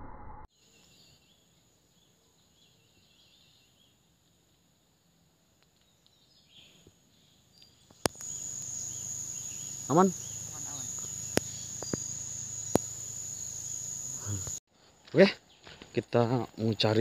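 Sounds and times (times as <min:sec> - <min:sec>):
faint bird chirps: 0:05.8 - 0:14.6
high insect drone: 0:07.6 - 0:14.6.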